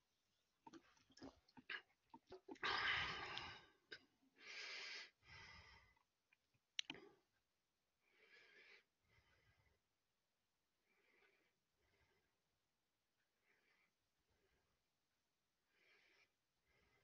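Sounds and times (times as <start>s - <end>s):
swallowing clicks: 6.8s - 7.0s.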